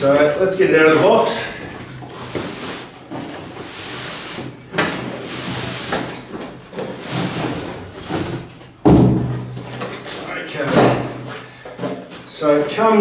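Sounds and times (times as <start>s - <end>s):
cardboard and bag scraping: 0.0s - 8.5s.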